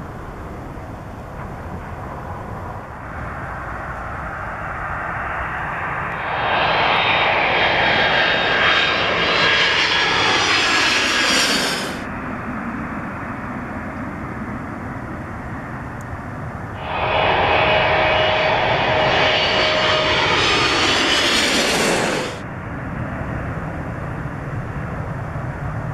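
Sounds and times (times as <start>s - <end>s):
steady jet rumble: 0.0s - 12.5s, 16.6s - 22.9s
jet airliner passing: 0.1s - 14.7s, 15.4s - 25.0s.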